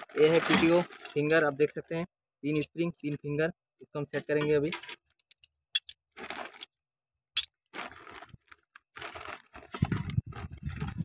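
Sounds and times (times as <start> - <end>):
plastic bag crinkling: 0.0 - 1.5, 6.2 - 6.7, 7.7 - 11.0
small metal parts clicking: 4.3 - 6.7.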